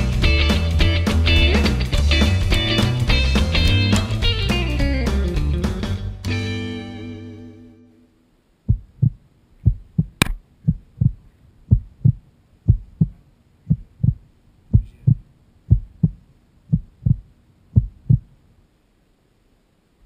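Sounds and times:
heartbeat double thump: 0:08.7 - 0:18.3
sharp click: 0:10.2 - 0:10.4.

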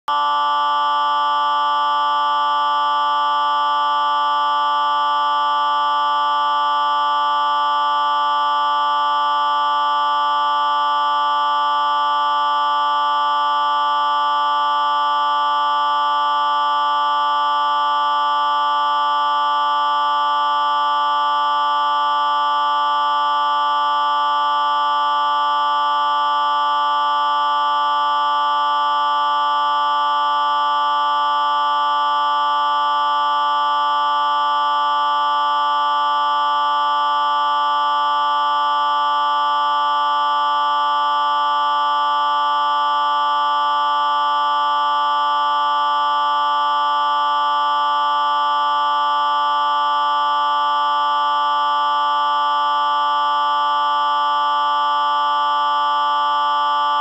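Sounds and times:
electronic test tone chord: 0:00.1 - 0:05.8.

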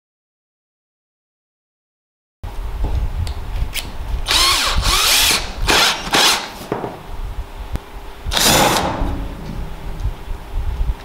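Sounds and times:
cordless drill motor bursts: 0:04.3 - 0:06.6, 0:08.3 - 0:08.8.

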